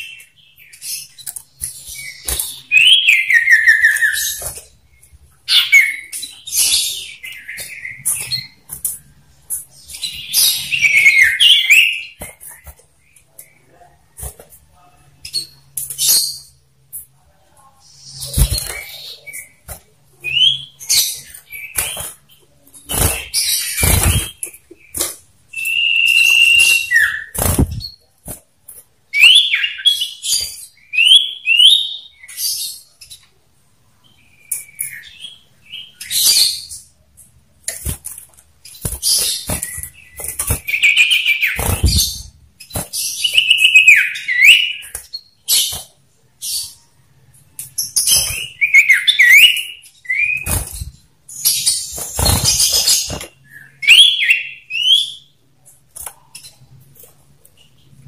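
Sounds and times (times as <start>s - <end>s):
wing flutter: 27.4s - 27.8s.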